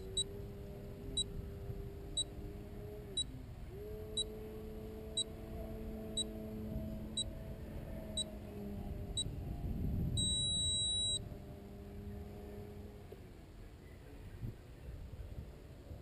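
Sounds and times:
model plane motor drone: 0.0s - 13.4s
electronic beeps: 10.2s - 11.2s.

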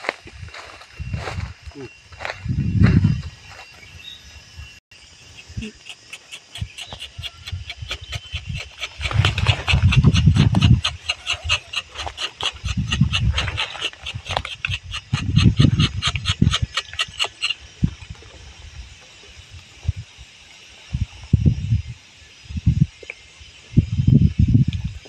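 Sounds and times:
knife scraping tree bark: 5.9s - 17.6s
steady rapid ticking: 5.9s - 17.6s.

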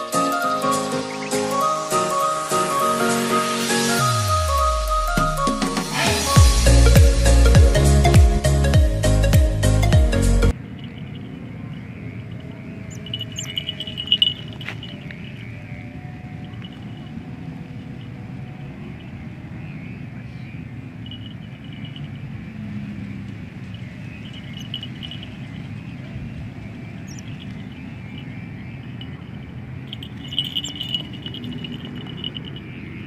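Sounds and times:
kite hummer drone: 10.3s - 33.0s
high chirping: 10.5s - 33.0s.

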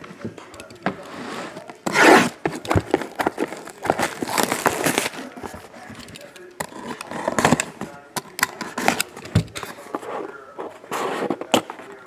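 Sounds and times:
plastic wrap tearing and crinkling: 1.8s - 5.4s.

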